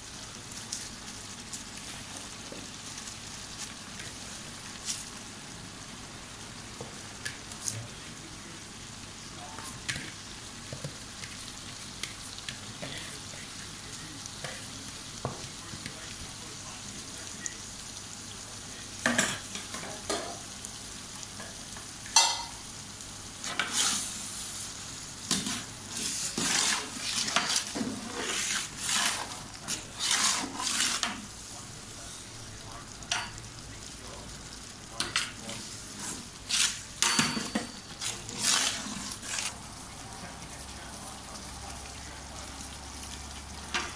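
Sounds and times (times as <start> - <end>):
sizzling hiss from cooking pot: 0.0 - 43.9
metal ladle scraping a pot: 25.4 - 31.1, 38.0 - 39.5.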